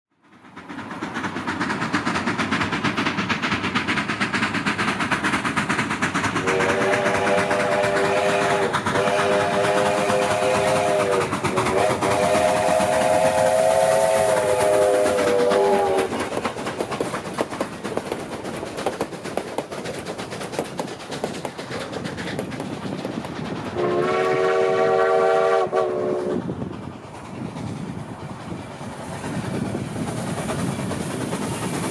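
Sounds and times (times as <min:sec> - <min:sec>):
steam locomotive exhaust chuffs: 0:00.2 - 0:31.9
train cars clacking on rails: 0:00.3 - 0:31.9
steam whistle chord: 0:06.4 - 0:16.1, 0:23.8 - 0:26.4.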